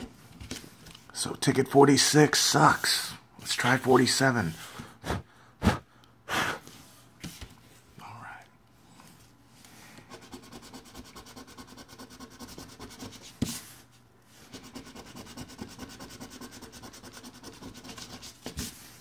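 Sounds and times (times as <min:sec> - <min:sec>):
lottery ticket being scratched: 0:14.6 - 0:18.3.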